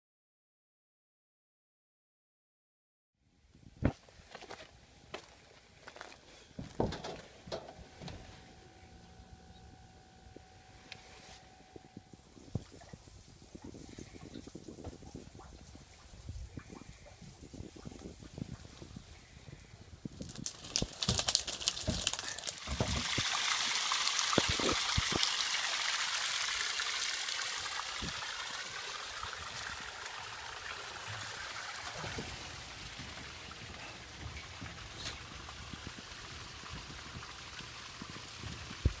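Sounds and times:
knocks and clatters of handling: 0:06.6 - 0:08.2
water trickling and splashing: 0:11.0 - 0:39.0.

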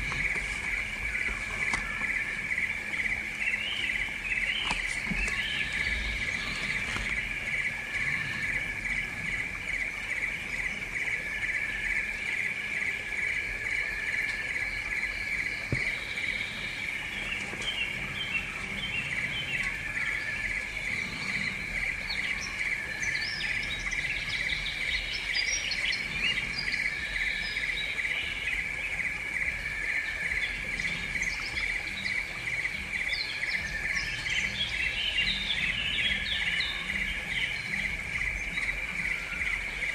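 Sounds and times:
bird chirps: 0:00.0 - 0:39.9.

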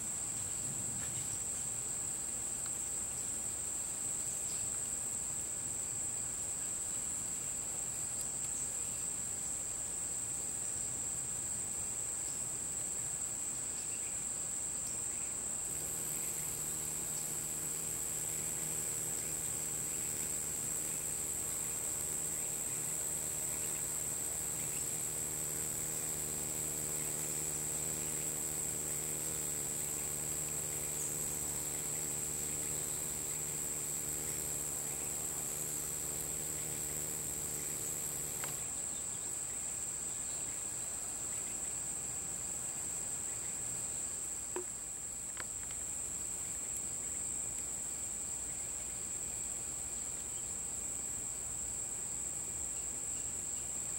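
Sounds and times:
insects chirping: 0:00.0 - 0:53.9.

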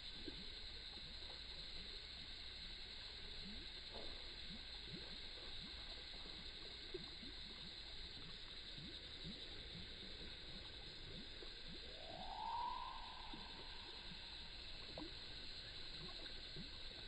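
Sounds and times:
steady high hiss: 0:01.1 - 0:17.0
lure bubbling on water surface: 0:04.2 - 0:17.0.

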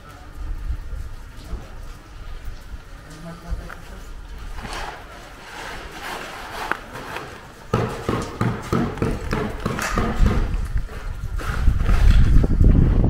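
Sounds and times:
wind rumbling on microphone: 0:00.0 - 0:06.9, 0:08.9 - 0:13.0
footsteps on paved ground: 0:00.0 - 0:13.0.

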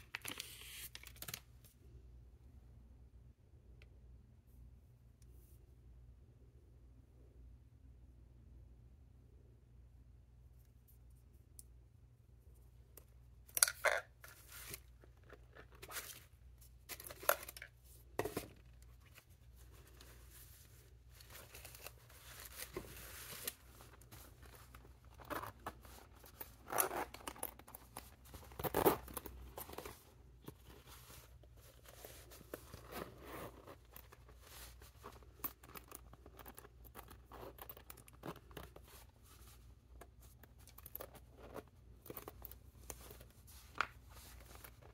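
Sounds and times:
metal zipper: 0:25.1 - 0:29.8, 0:31.8 - 0:38.8.

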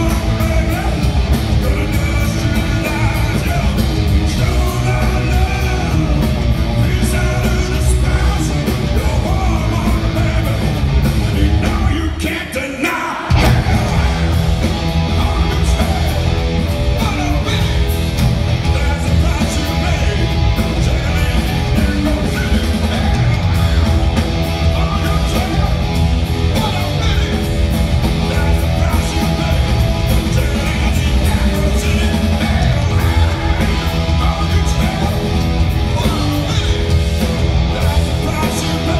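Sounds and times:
hard rock band playing: 0:00.0 - 0:38.9
person shouting lead vocal: 0:28.2 - 0:37.0.

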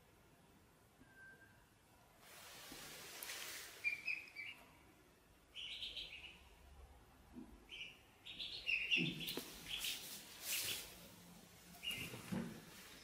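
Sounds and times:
ducklings peeping: 0:03.8 - 0:04.7, 0:05.5 - 0:06.7, 0:07.6 - 0:11.0, 0:11.8 - 0:12.3.

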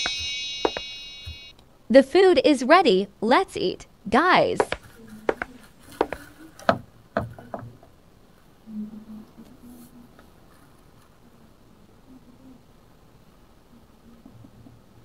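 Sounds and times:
sharp clicks and knocks: 0:04.6 - 0:06.2.

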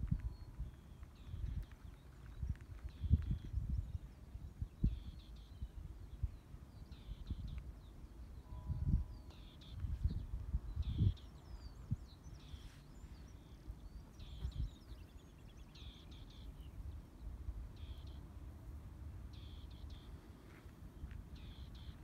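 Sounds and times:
wind rumble on microphone: 0:00.0 - 0:22.0.

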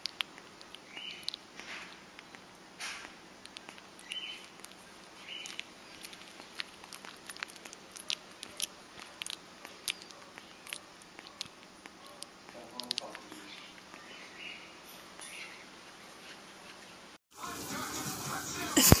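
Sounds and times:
animal chewing wet clicks: 0:00.0 - 0:14.2.

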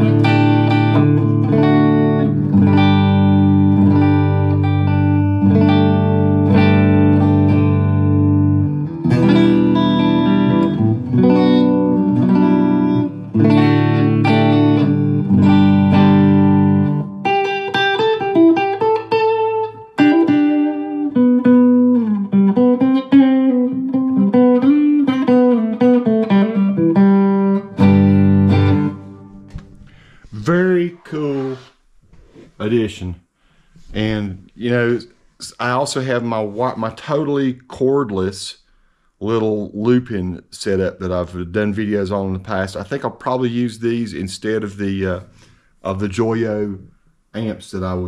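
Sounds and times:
electric guitar playing: 0:00.0 - 0:30.4.

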